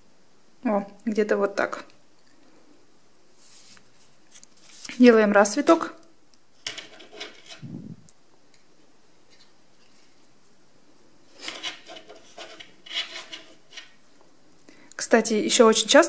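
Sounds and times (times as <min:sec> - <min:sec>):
tape rustling and rubbing: 0:03.3 - 0:05.2, 0:06.6 - 0:08.1, 0:11.3 - 0:14.0.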